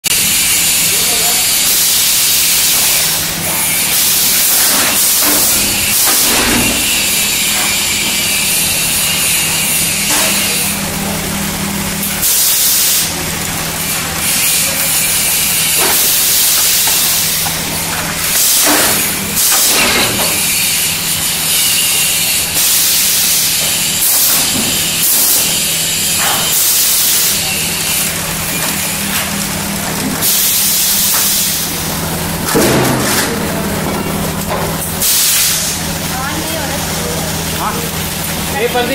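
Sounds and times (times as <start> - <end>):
loud air hissing: 0.1 - 29.1, 30.2 - 32.0, 34.8 - 37.7
sharp machine knock: 4.5 - 7.8, 18.5 - 20.5.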